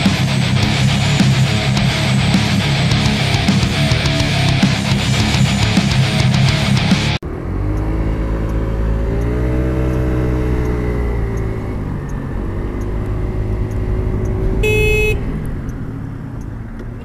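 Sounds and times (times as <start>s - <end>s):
scooter engine running: 7.2s - 15.2s
scooter horn: 14.6s - 15.4s.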